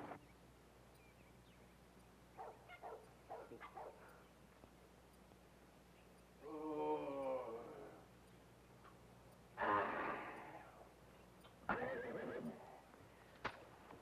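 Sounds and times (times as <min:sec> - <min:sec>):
animal yelps: 0:02.4 - 0:04.0
long animal call: 0:06.4 - 0:08.1, 0:09.6 - 0:10.9, 0:11.7 - 0:12.8.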